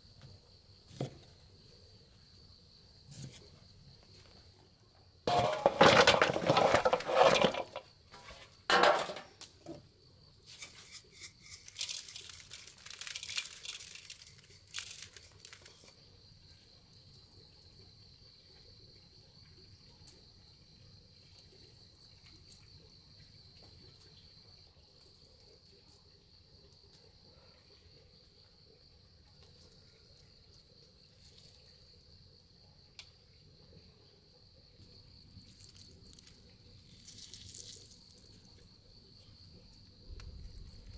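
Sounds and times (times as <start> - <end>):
high-pitched insect chorus: 0.0 - 40.9
crinkling and rustling handling: 10.5 - 16.0.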